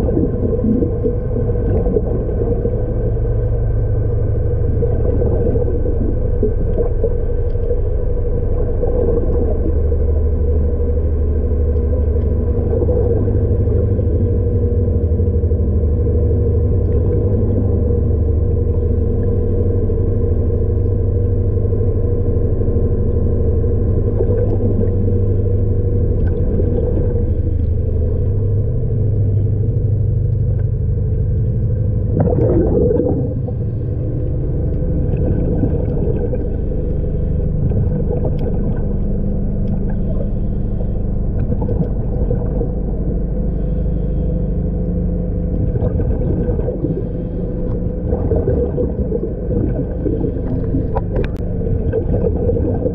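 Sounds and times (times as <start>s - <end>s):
underwater machinery hum: 0.0s - 52.9s.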